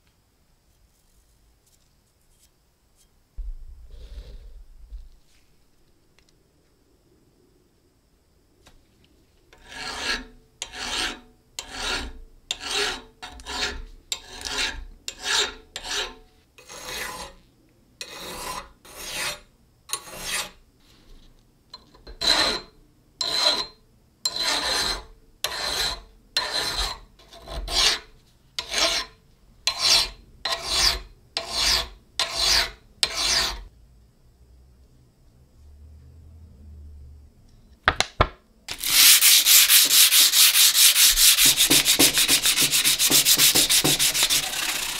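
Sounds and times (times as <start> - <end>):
hand file scraping wood: 9.6 - 17.4, 18.0 - 19.4, 20.0 - 20.6, 24.3 - 29.1, 29.7 - 33.7, 38.7 - 44.9.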